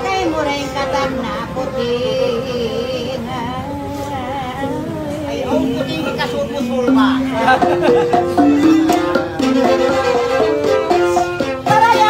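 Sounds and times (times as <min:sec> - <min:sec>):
gliding melody line: 0:00.2 - 0:12.0
bamboo xylophone: 0:05.5 - 0:12.0.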